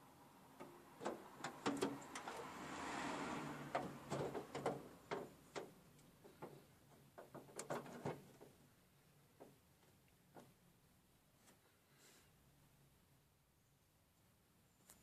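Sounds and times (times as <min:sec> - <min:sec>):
metallic clicks and knocks: 0:00.6 - 0:02.4, 0:03.7 - 0:08.6.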